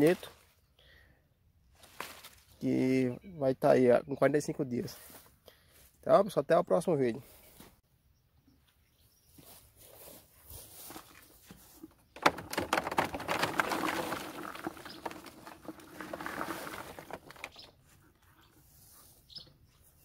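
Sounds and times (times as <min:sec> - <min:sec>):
bean pods poured into plastic crate: 0:12.2 - 0:17.7.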